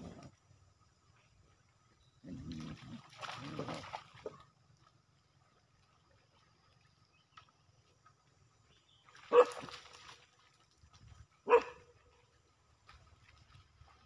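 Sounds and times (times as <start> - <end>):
dog barking: 9.3 - 9.7, 11.4 - 11.9.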